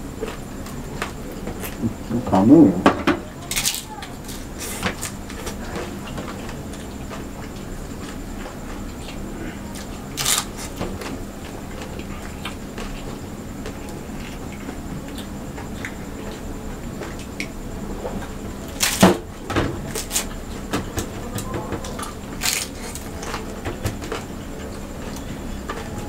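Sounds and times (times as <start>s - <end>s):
faint steady hum: 0.0s - 26.0s
crunching of crisp food: 3.5s - 17.6s, 21.8s - 26.0s.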